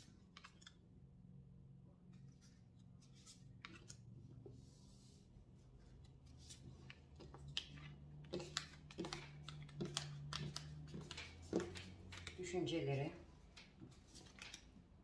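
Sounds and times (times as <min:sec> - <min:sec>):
cards clicking on a tabletop: 0:00.3 - 0:00.8, 0:06.5 - 0:12.4, 0:13.5 - 0:14.7.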